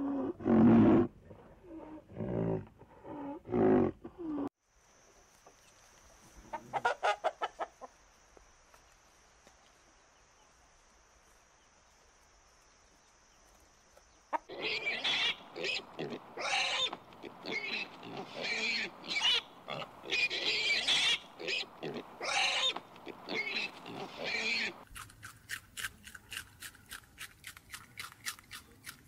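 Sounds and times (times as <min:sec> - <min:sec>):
rooster clucking: 0:06.5 - 0:07.9
deep drawn-out animal calls: 0:14.5 - 0:24.8
piglets squealing: 0:14.5 - 0:24.8.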